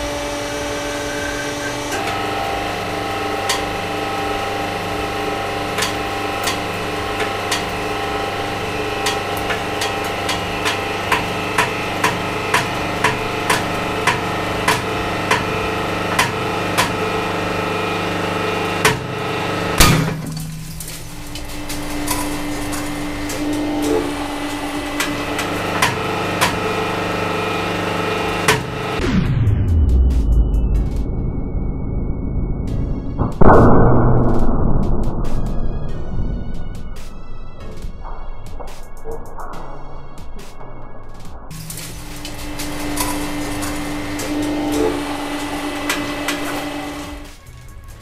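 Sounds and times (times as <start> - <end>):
hydraulic pump hum: 0.0 - 29.1, 41.5 - 47.4
loud glass crack: 5.6 - 26.9, 41.5 - 47.9.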